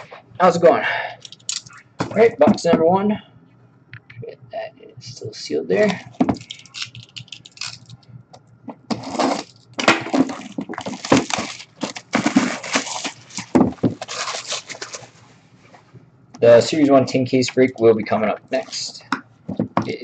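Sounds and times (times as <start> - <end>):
plastic wrap crinkling: 8.9 - 15.3.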